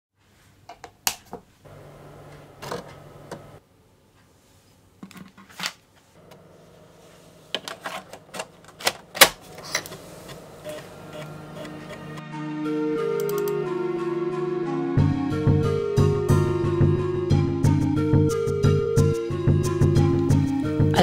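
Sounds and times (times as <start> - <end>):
floppy drive motor hum: 1.7 - 3.6, 9.5 - 12.2.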